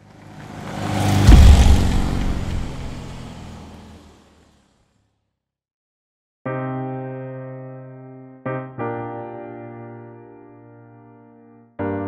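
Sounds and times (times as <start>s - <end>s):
car drive-by: 0.0s - 5.1s.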